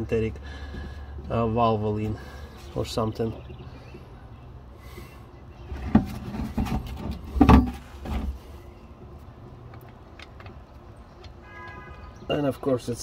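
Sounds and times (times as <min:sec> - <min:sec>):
plastic bottle being moved: 0:05.7 - 0:08.4
handling knocks and scrapes: 0:05.7 - 0:08.5.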